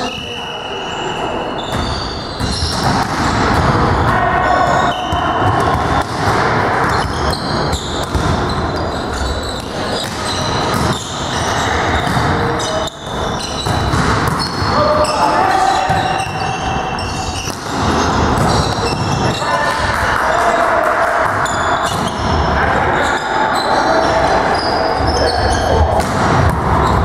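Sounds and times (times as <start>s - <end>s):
players calling out: 0.0s - 27.0s
volleyball being struck: 17.4s - 19.4s.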